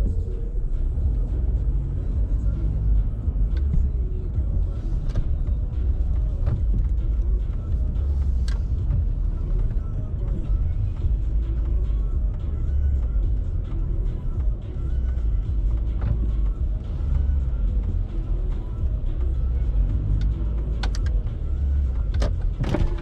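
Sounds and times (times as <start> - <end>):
car engine and tyres rumbling: 0.0 - 23.0.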